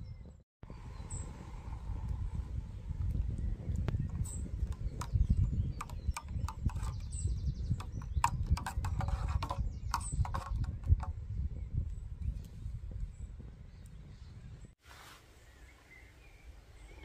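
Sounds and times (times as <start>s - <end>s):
steady low rumble: 0.6s - 5.8s.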